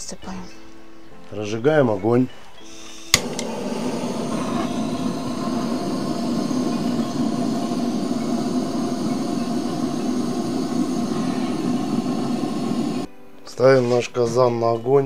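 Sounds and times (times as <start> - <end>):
gas torch flame rushing: 2.8 - 13.1.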